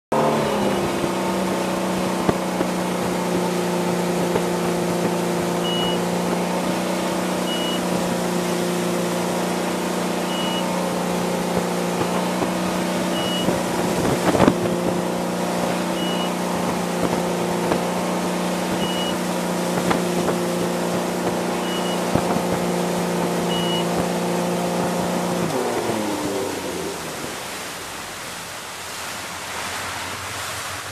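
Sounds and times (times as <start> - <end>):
boat engine running: 0.1 - 30.9
wind and spray hiss: 0.2 - 30.9
short high beeps: 5.6 - 6.1, 7.4 - 7.9, 10.2 - 10.8, 13.1 - 13.6, 15.9 - 16.4, 18.8 - 19.2, 21.6 - 22.1, 23.4 - 23.9.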